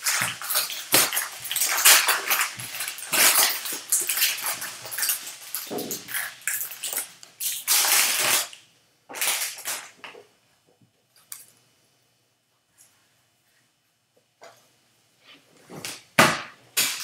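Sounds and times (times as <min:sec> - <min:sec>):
foil wrapper crinkling and tearing: 0:00.0 - 0:10.0.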